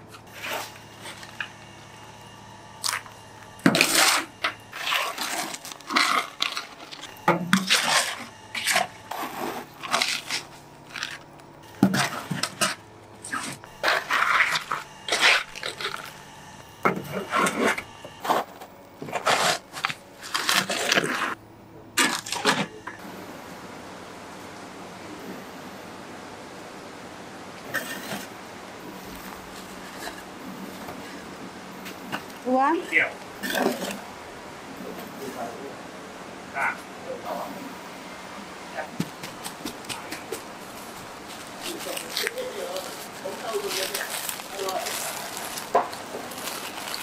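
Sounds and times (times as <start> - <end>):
metal shovel scraping through ash: 3.6 - 11.2, 11.8 - 16.1, 17.0 - 21.4.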